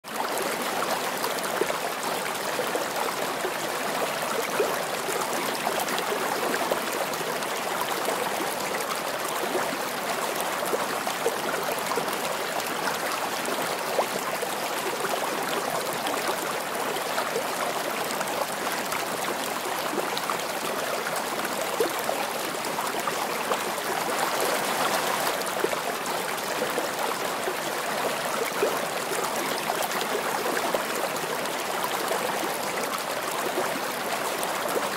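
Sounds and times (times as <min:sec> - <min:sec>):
running water rushing: 0:18.0 - 0:34.9.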